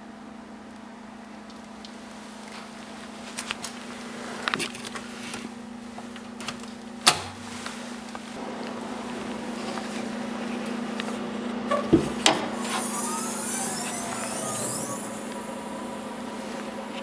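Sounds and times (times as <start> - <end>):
low hum: 12.6 - 17.0.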